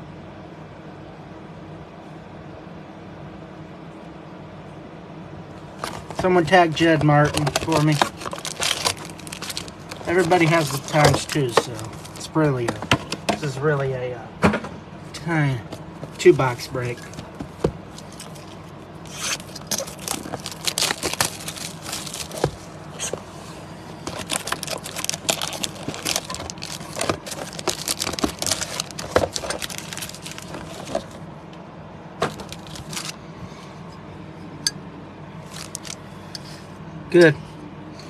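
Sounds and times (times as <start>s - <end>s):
cardboard scraping: 5.7s - 13.2s, 17.0s - 31.2s, 32.2s - 33.2s
foil packs crinkling and rustling: 5.7s - 13.5s, 16.0s - 23.4s, 24.0s - 31.2s, 32.2s - 33.2s, 35.4s - 36.0s.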